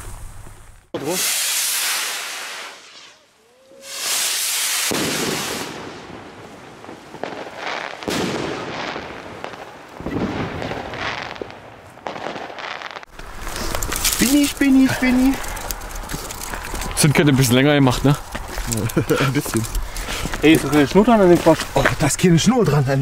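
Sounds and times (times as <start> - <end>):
firework stars popping and crackling: 0.0 - 22.4
firework rushing hiss: 1.0 - 16.6.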